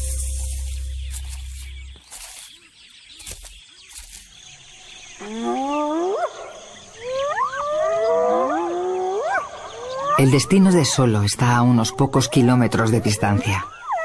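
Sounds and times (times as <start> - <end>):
music: 0.0 - 1.9
outdoor rustling ambience: 0.0 - 14.0.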